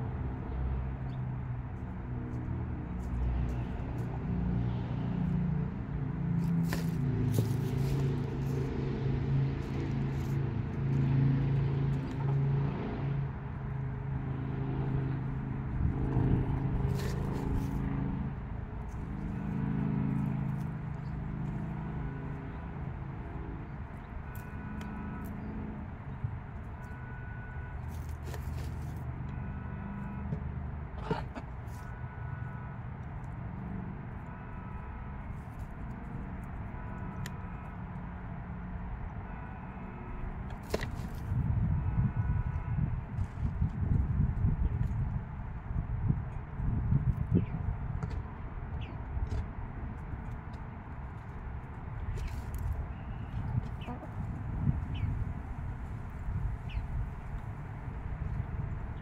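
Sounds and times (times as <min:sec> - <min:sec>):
chickens murmuring: 0:30.9 - 0:31.8, 0:53.6 - 0:54.2.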